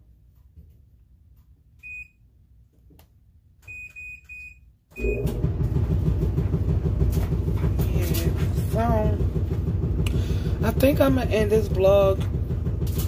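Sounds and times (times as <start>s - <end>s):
electronic beeps: 3.7s - 5.4s
laundry machine rumbling: 5.0s - 13.0s.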